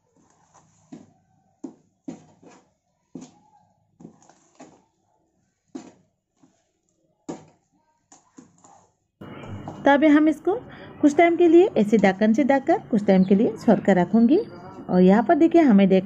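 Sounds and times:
spoon stirring thick batter: 0:00.0 - 0:09.8.

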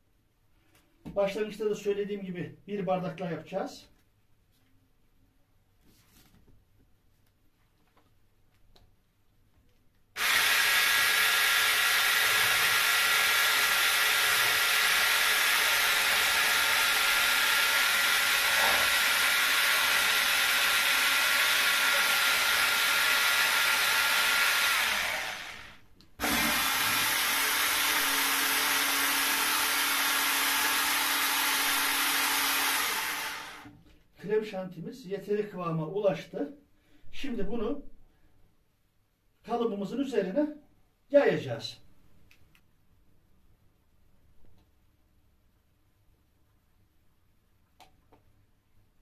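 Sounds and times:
electric hand blender whisking: 0:10.2 - 0:33.7.

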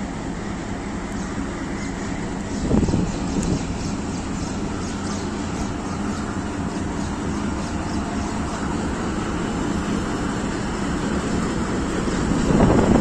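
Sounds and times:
locomotive engine running: 0:00.0 - 0:13.0.

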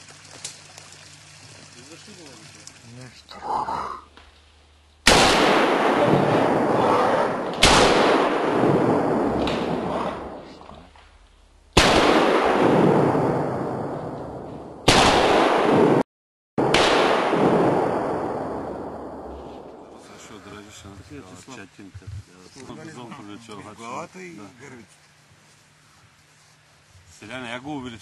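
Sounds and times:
loud gunshots with rolling echo: 0:05.0 - 0:10.6, 0:11.7 - 0:14.1, 0:14.8 - 0:16.0, 0:16.6 - 0:19.8.

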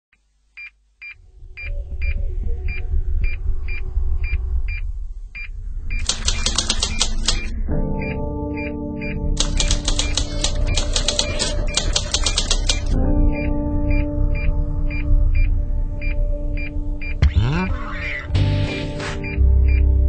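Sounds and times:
music with ticking clicks: 0:06.0 - 0:17.5, 0:18.4 - 0:20.0
deep bass: 0:12.6 - 0:20.0.

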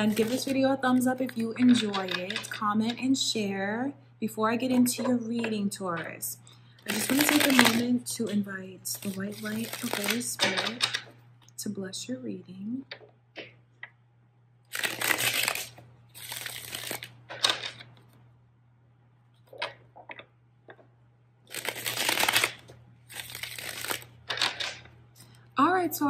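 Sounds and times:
cards being shuffled: 0:01.2 - 0:03.0, 0:06.9 - 0:07.9, 0:09.0 - 0:11.1, 0:14.7 - 0:18.2, 0:21.5 - 0:24.9.

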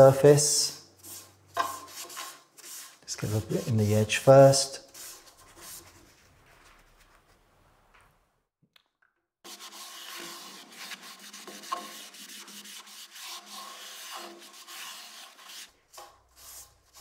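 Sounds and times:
cloth rubbing over wood: 0:04.9 - 0:07.8.

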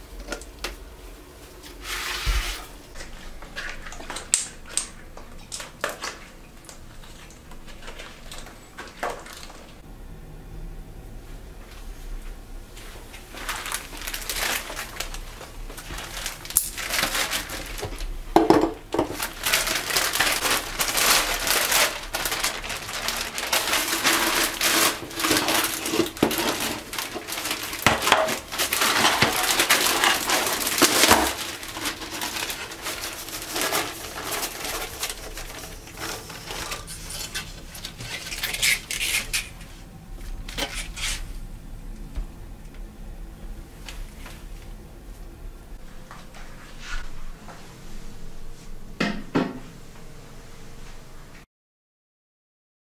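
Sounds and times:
plastic bag rustling: 0:01.4 - 0:09.8, 0:12.7 - 0:41.5.

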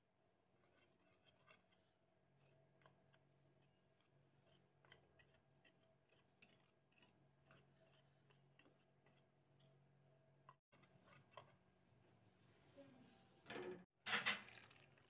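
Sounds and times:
whisk ticking in plastic bowl: 0:00.6 - 0:11.5.

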